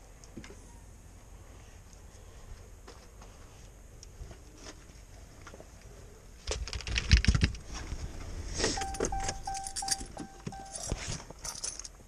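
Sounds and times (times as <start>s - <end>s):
car warning chime dings: 8.8s - 10.9s.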